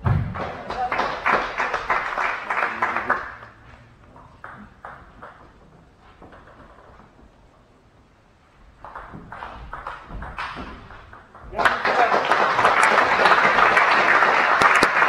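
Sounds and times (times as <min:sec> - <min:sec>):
spectators clapping: 0:00.0 - 0:05.5, 0:08.8 - 0:15.0.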